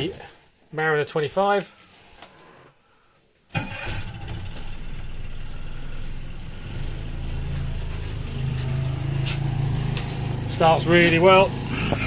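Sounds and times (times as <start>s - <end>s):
outboard engine starting and idling: 3.5s - 7.5s.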